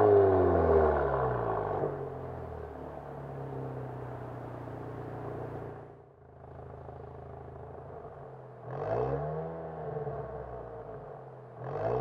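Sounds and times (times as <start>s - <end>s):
car engine idling: 1.2s - 5.8s
engine revving: 11.6s - 12.0s.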